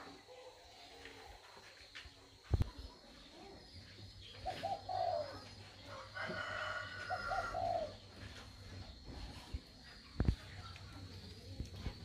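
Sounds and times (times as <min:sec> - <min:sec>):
pigeon cooing: 0:04.4 - 0:05.6, 0:06.3 - 0:08.2.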